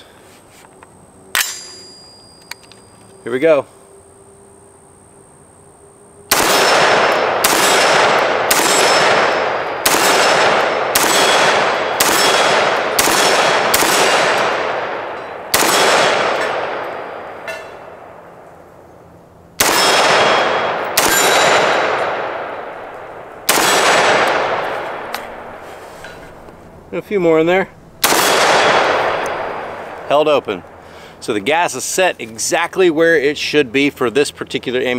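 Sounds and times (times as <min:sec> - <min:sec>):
rifle gunshots: 0:06.3 - 0:18.2, 0:19.6 - 0:25.6, 0:28.0 - 0:30.2.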